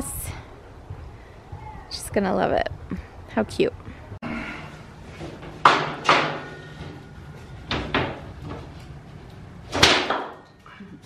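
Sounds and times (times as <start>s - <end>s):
metal shelving knocks: 5.2s - 7.0s, 7.6s - 8.8s.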